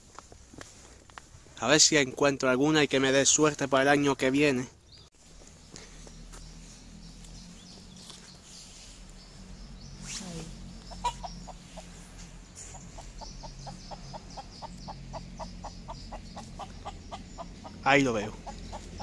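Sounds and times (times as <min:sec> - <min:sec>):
rooster clucking: 0:10.9 - 0:12.0, 0:12.7 - 0:19.0.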